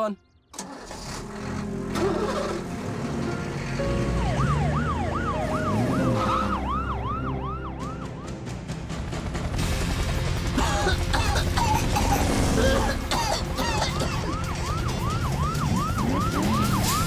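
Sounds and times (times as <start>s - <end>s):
emergency siren yelping: 3.8s - 8.4s, 13.6s - 17.0s.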